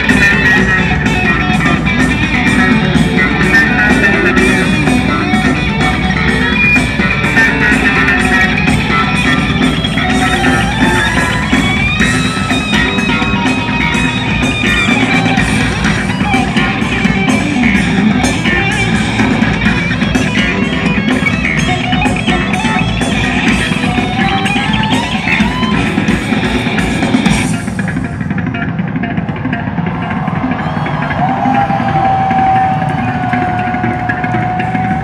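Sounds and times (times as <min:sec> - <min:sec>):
live rock band through pa: 0:00.0 - 0:35.0.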